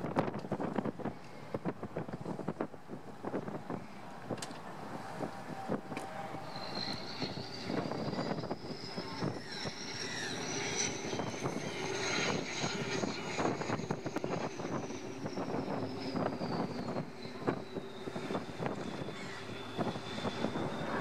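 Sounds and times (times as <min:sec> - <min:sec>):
high engine whine: 0:00.0 - 0:21.0
wind gusting on microphone: 0:00.0 - 0:21.0.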